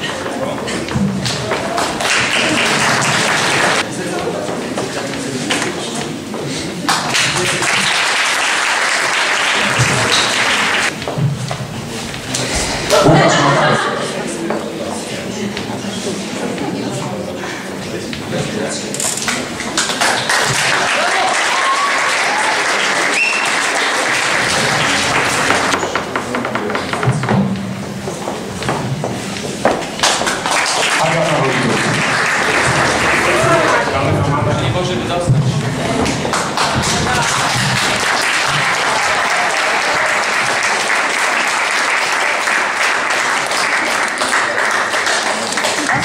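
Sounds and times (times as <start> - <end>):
audience applauding: 1.2 - 3.9, 6.8 - 11.0, 19.3 - 26.5, 29.9 - 34.9, 35.8 - 46.0.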